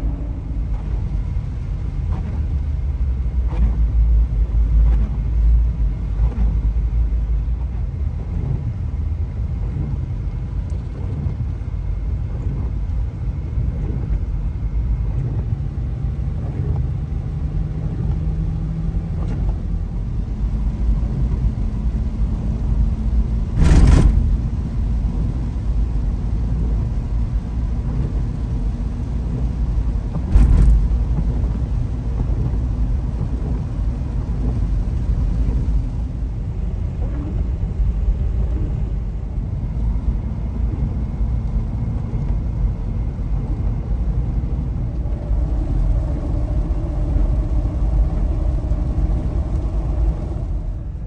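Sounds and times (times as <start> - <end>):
vehicle engine and road rumble: 0.0 - 51.0
short thump: 23.6 - 24.4, 30.2 - 31.3.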